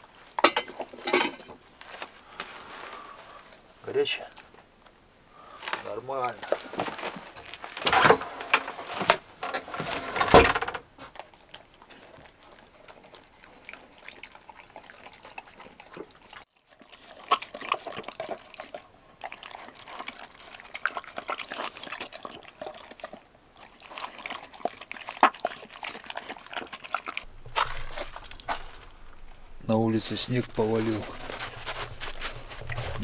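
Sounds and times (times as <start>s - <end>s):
dog lapping and chewing: 10.8s - 29.6s, 30.6s - 33.0s.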